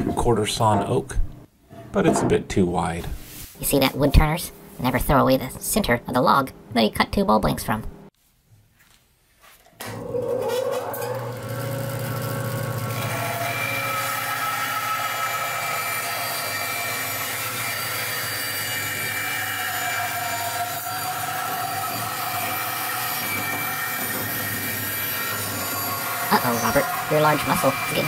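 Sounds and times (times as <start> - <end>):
band saw cutting wood: 9.9 - 28.0.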